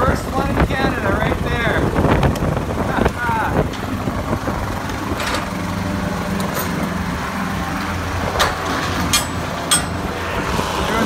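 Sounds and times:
truck engine idling: 0.0 - 11.0
metal locking bar clank: 8.4 - 10.0.

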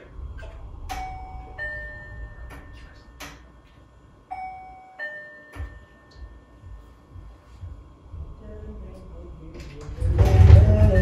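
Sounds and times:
two-note door chime: 0.9 - 3.5, 4.3 - 6.9.

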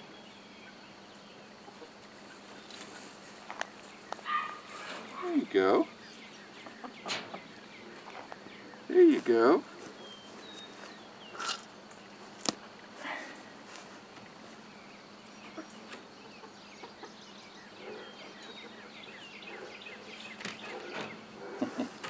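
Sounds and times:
birds chirping: 0.0 - 22.0
steady low hum: 0.0 - 22.0
soft rustles: 1.9 - 5.2, 9.1 - 11.1, 12.0 - 14.8.

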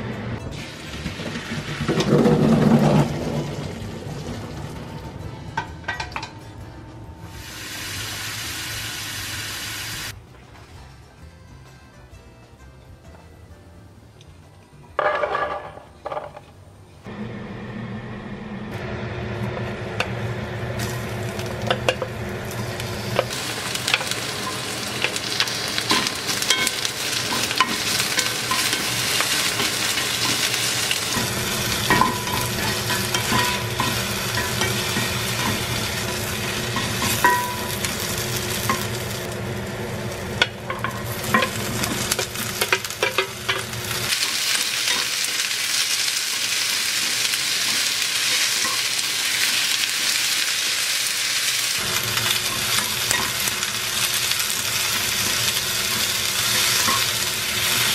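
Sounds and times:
onion sizzling in oil: 0.4 - 5.1, 7.3 - 10.2, 19.7 - 57.9.

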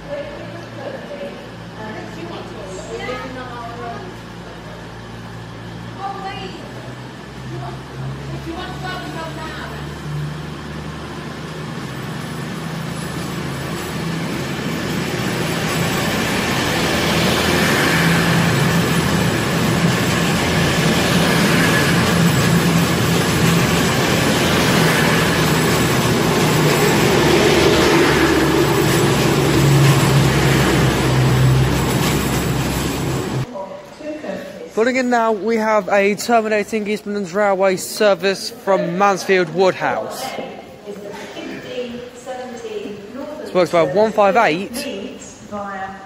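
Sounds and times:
diesel train passing: 0.0 - 33.7, 34.6 - 46.0.

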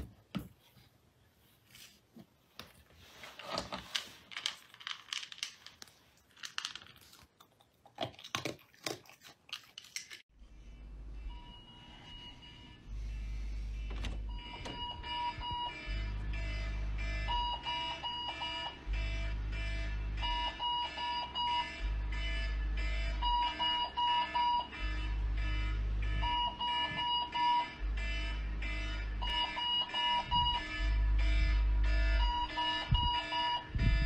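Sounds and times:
long deep bass tone: 12.8 - 17.6, 18.8 - 20.7, 27.7 - 29.5, 30.2 - 34.0.

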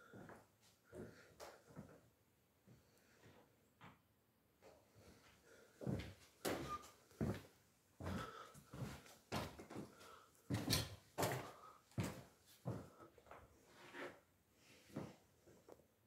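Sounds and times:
footsteps on wooden floorboards: 5.8 - 13.5.

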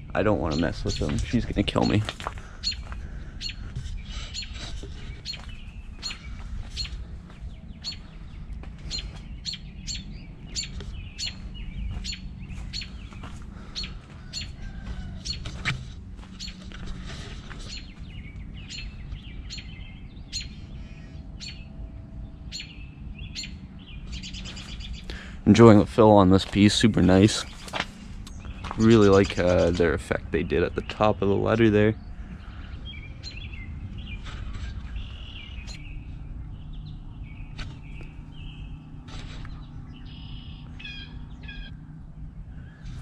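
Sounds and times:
bird alarm calls: 0.0 - 21.8, 22.5 - 25.4, 32.0 - 36.0, 36.7 - 41.8.

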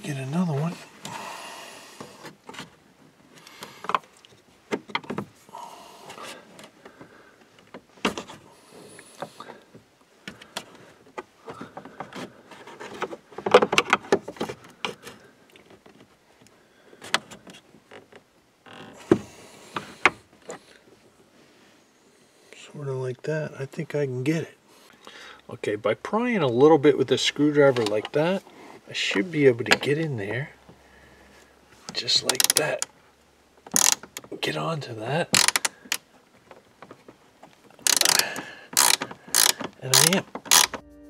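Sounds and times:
screwdriver scraping plastic trim: 37.9 - 40.8.

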